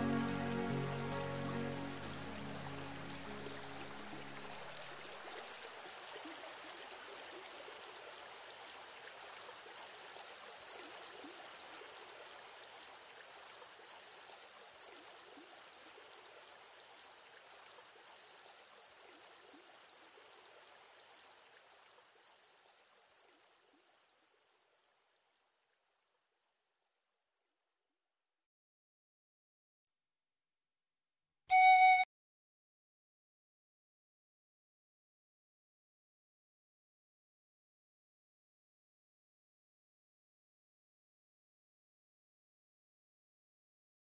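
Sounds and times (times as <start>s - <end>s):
music tones: 0.0s - 4.6s, 31.5s - 32.0s
stream rushing: 0.0s - 6.3s.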